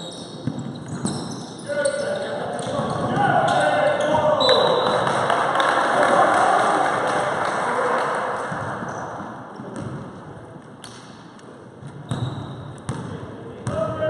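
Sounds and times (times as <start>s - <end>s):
shoe squeak: 0.0s - 5.0s, 12.0s - 12.9s
basketball bouncing on wooden court: 0.4s - 1.4s, 9.6s - 10.1s, 11.8s - 13.9s.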